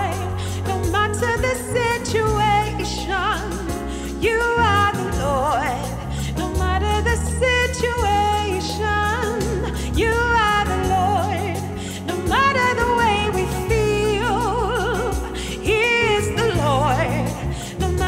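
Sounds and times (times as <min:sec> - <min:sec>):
solo voice singing: 0:00.0 - 0:18.0.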